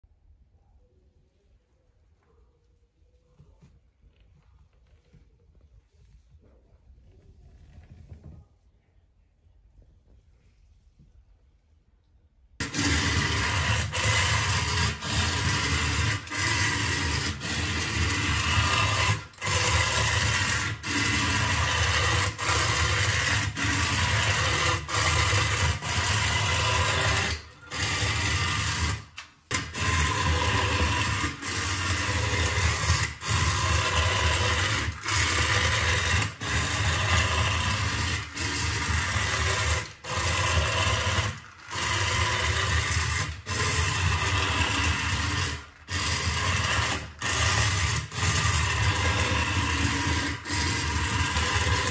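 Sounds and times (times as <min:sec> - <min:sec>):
toy car motor whirring: 0:12.6 - 0:51.9.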